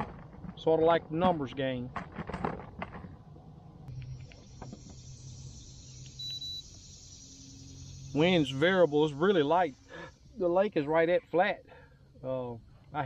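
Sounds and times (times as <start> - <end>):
high-pitched electronic beep: 6.2 - 8.6.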